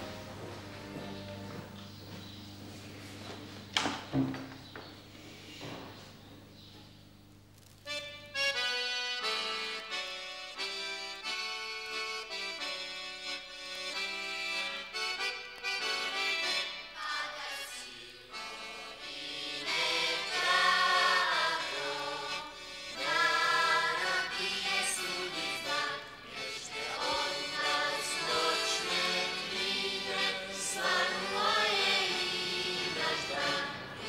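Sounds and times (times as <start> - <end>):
choir singing with music: 15.7 - 34.0.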